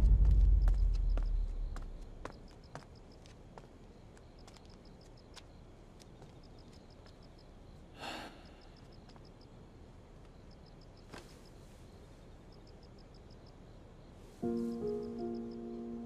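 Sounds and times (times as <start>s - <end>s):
soft footsteps: 0.0s - 7.3s
crickets chirping: 0.0s - 16.0s
breathy sigh: 8.0s - 8.8s.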